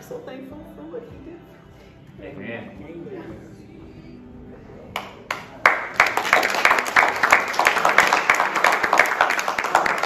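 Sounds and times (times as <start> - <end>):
people clapping: 4.9 - 10.0.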